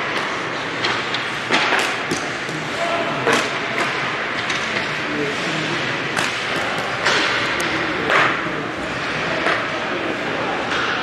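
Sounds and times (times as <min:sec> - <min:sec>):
hockey sticks and puck clacking: 0:00.0 - 0:11.0
skates scraping on ice: 0:00.2 - 0:11.0
faint voices: 0:02.2 - 0:11.0.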